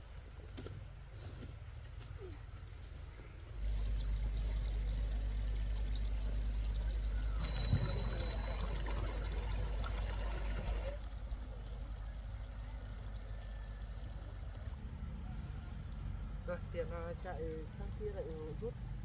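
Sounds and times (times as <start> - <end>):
water trickling: 3.0 - 19.0
thin high tone: 7.1 - 9.8.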